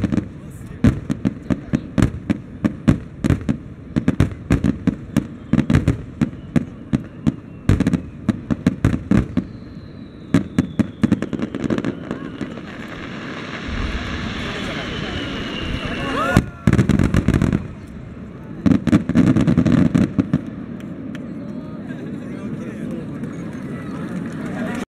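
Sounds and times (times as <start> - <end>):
firework bangs: 0.0 - 21.2
fireworks hissing: 4.0 - 20.2.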